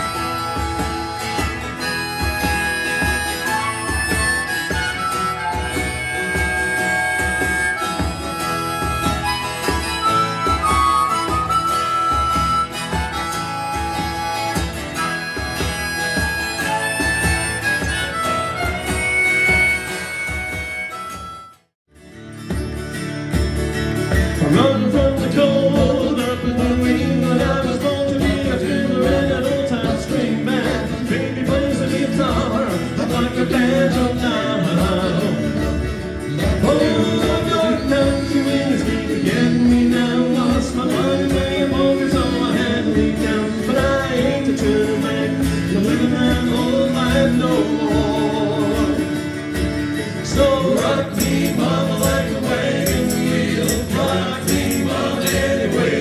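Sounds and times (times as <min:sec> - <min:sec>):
strummed acoustic guitars: 0:00.0 - 0:56.0
hand drum beat: 0:00.1 - 0:20.8, 0:22.5 - 0:56.0
men singing in harmony: 0:24.4 - 0:56.0.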